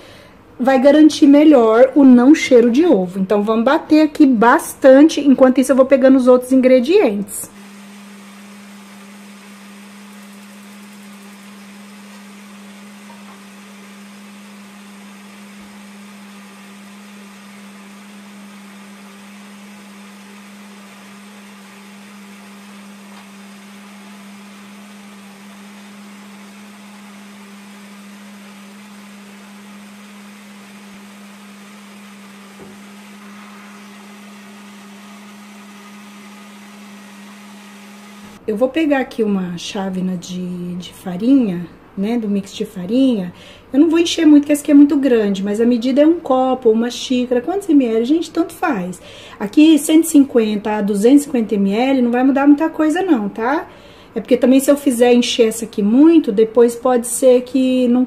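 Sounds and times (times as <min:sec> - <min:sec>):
blender motor hum: 0:06.8 - 0:38.4.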